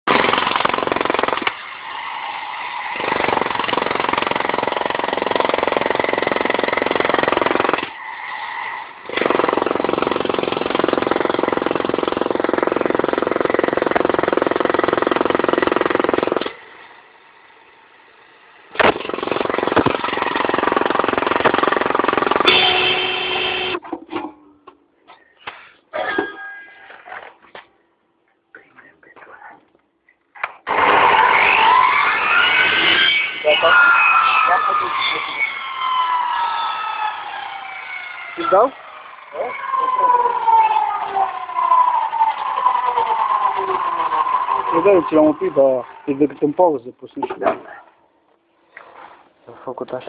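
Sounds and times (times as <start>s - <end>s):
demolition hammer breaking concrete: 0.1s - 1.6s, 3.0s - 7.9s, 18.8s - 22.6s.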